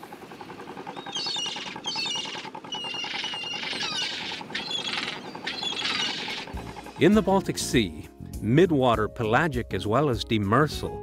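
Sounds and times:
gulls calling: 0.0s - 7.7s
steady low hum: 0.0s - 8.2s.

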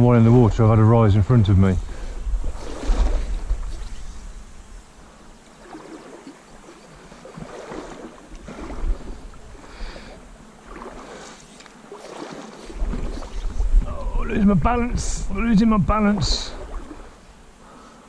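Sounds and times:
river water sloshing and splashing: 1.9s - 13.9s, 16.1s - 17.3s.

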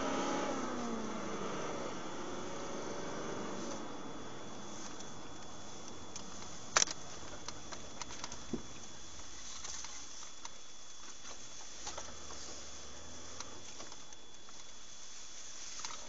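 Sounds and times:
car cabin hiss: 0.0s - 10.2s
faint high whine: 0.0s - 16.0s.

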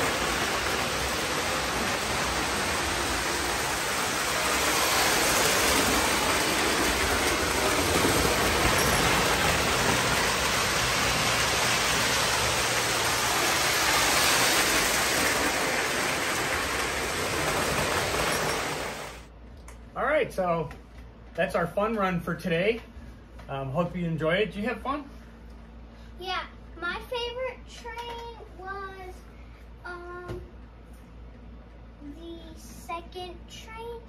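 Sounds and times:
model trains rumbling: 0.0s - 19.3s.

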